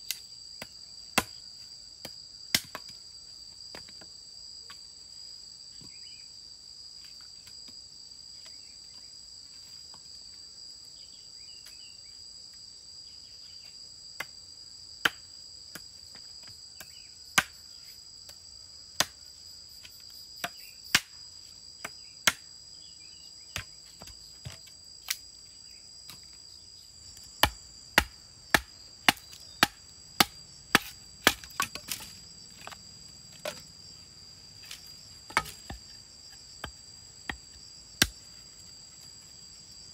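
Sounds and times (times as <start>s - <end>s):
knife chopping wood: 0.1s - 1.4s, 2.0s - 2.9s, 15.0s - 15.9s, 16.8s - 17.6s, 19.0s - 19.2s, 21.8s - 22.4s, 27.2s - 33.7s, 34.6s - 38.2s.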